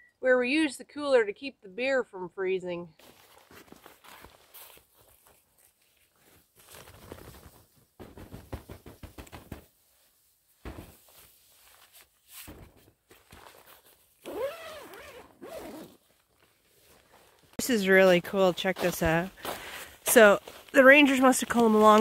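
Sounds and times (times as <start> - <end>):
footsteps crunching in snow: 3.0 - 7.7, 15.5 - 22.0
tent zipper pulled open: 13.4 - 16.3.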